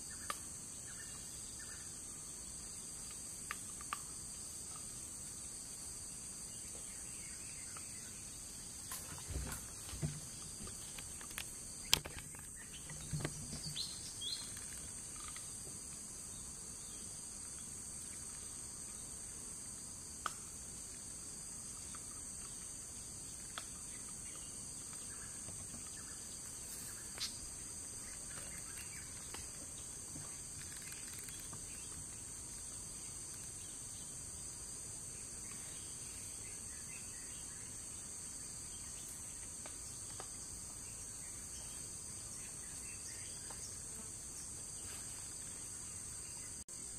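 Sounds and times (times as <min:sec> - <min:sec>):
insects droning: 0:00.0 - 0:46.9
short knocks and rustles: 0:08.9 - 0:13.8
faint ticks: 0:14.2 - 0:16.1.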